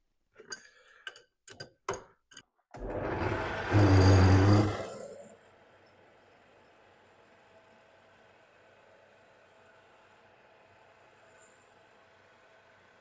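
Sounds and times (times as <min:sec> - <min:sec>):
lathe motor humming: 0:02.8 - 0:05.2.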